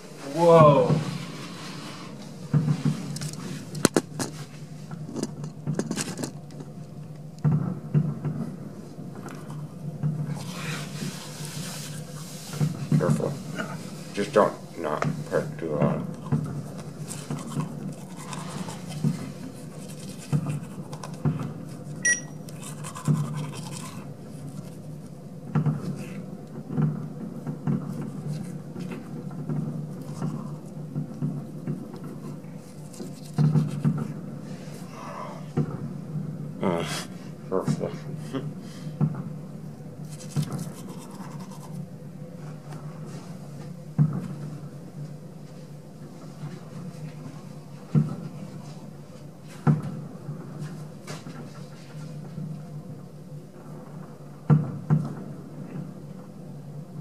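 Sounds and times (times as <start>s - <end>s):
faint steady hum: 0.0s - 57.0s
short electronic beep: 22.0s - 22.4s.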